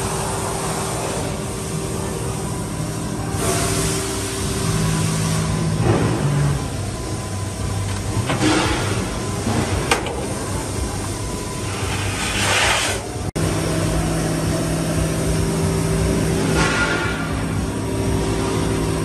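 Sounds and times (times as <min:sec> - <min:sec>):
machine hum: 0:00.0 - 0:19.0.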